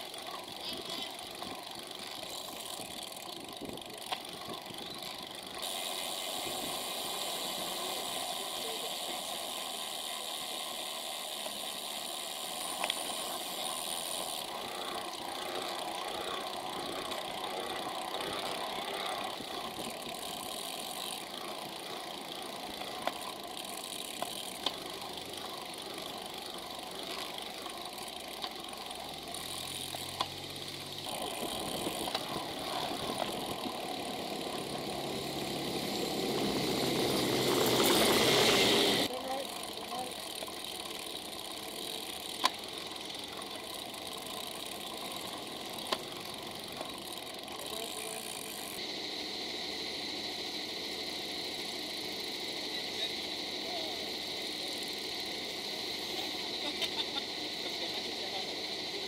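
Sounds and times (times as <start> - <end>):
bicycle rattles: 0.0 - 59.0
road and wind hiss: 0.0 - 59.0
coach engine passing: 28.8 - 49.0.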